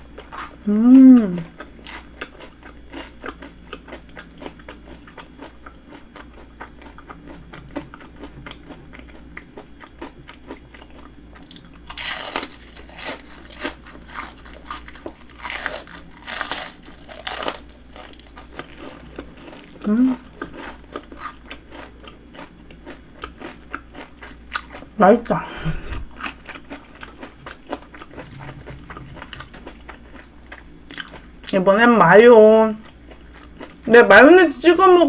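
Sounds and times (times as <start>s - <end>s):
chewing crispy fried food: 0.0s - 25.4s, 26.0s - 34.7s.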